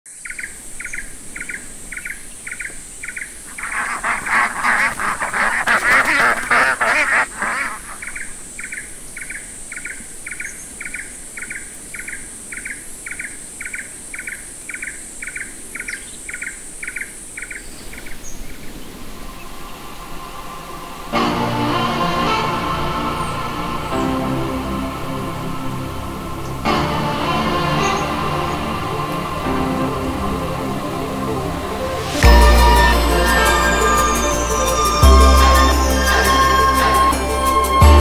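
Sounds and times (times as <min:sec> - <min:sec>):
ducks quacking: 0:03.5 - 0:08.3, 0:35.4 - 0:37.3
high insect buzz: 0:03.5 - 0:08.7.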